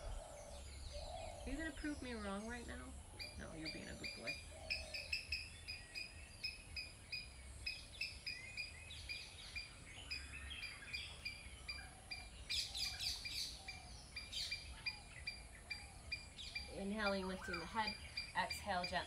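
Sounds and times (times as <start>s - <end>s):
higher bird calls: 0.0s - 19.0s.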